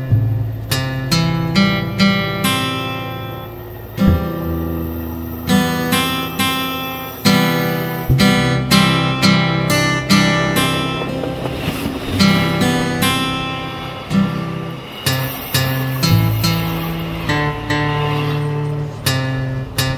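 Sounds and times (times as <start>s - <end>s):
acoustic guitar strumming chords: 0.0s - 19.9s.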